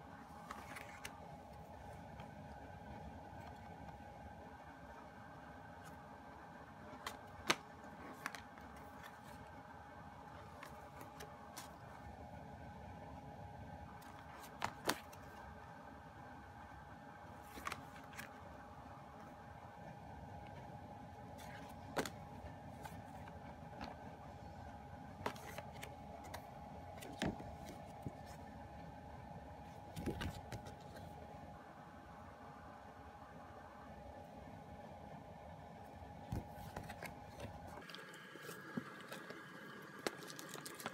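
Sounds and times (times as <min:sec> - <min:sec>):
faint steady hum: 0:00.0 - 0:40.9
paper pages rustling: 0:00.3 - 0:02.5, 0:06.9 - 0:09.5, 0:14.0 - 0:15.4, 0:17.4 - 0:18.4, 0:21.3 - 0:24.1, 0:25.2 - 0:28.4, 0:29.8 - 0:31.1, 0:36.3 - 0:37.8, 0:40.0 - 0:40.9
cards tapping and clicking: 0:06.9 - 0:09.4, 0:14.0 - 0:15.2.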